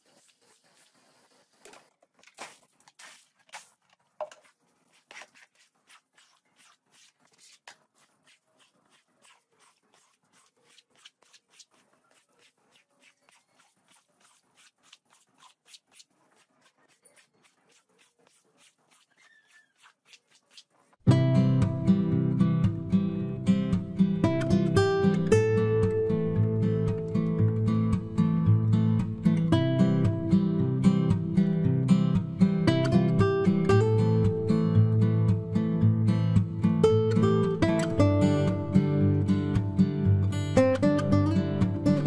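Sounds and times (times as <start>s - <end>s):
scrub brush swishing on wet rug: 0.0s - 21.0s
strummed acoustic guitar music: 21.1s - 42.0s.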